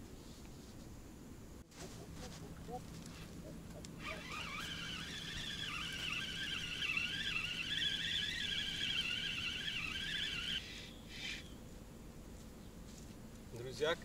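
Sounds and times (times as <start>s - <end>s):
fishing reel gears whining: 4.0s - 11.5s.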